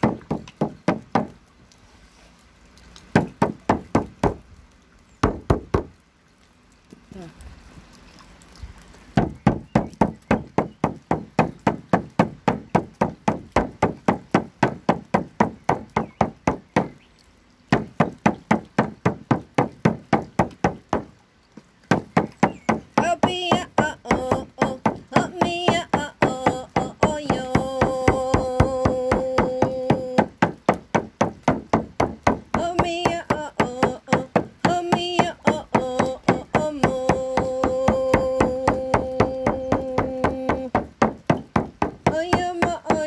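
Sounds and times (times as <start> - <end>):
frame drum beating: 9.2 - 16.9, 17.7 - 21.1, 21.9 - 43.0
woman chanting wordlessly: 23.0 - 30.5, 32.5 - 43.0.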